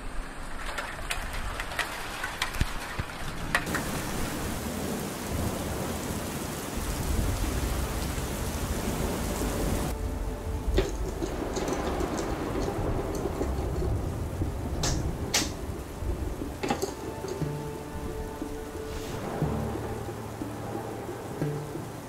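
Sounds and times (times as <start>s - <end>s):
rain on water and stones: 0.0s - 22.0s
low rumble: 3.9s - 22.0s.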